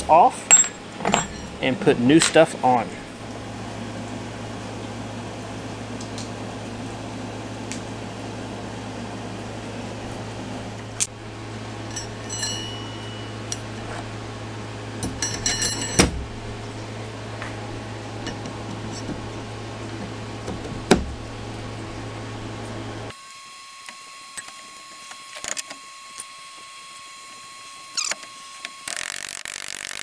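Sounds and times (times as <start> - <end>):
steady low hum: 0.0 - 23.1
metal parts clinking on workbench: 0.5 - 2.5, 11.9 - 13.6, 15.0 - 16.1
small metal part ringing: 11.9 - 13.7, 15.1 - 16.1.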